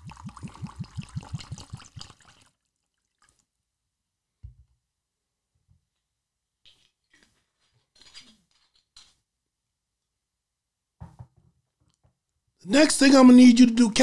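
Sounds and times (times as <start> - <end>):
liquor glugging into cup: 0.0 - 3.4.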